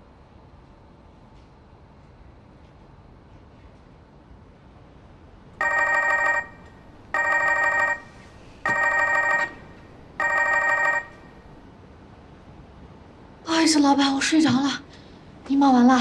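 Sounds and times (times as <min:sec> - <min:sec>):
mobile phone ringing: 0:05.6 - 0:11.3.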